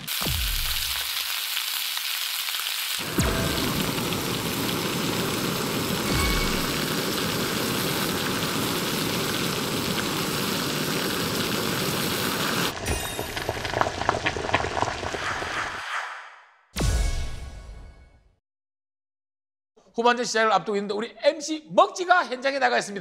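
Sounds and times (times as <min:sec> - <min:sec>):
meat sizzling on a grill: 0:00.0 - 0:15.1
stew bubbling with pops: 0:12.7 - 0:15.8.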